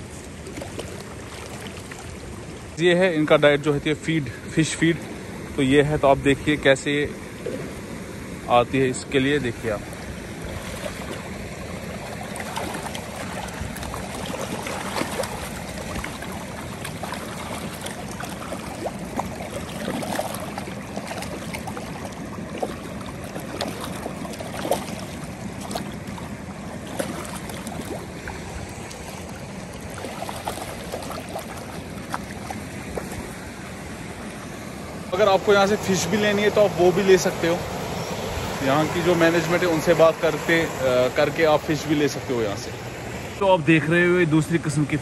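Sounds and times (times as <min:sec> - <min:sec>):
fish splashing at water surface: 0:00.3 - 0:02.8, 0:09.6 - 0:41.3.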